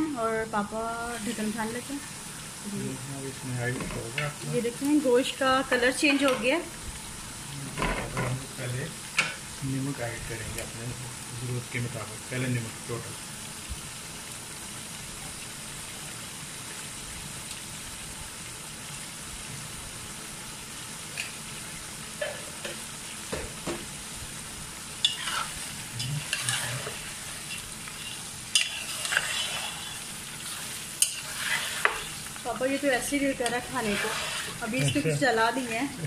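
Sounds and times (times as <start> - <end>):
meat sizzling in oil: 0.0 - 36.0
spoon scraping a pot: 25.0 - 32.3, 33.5 - 34.8.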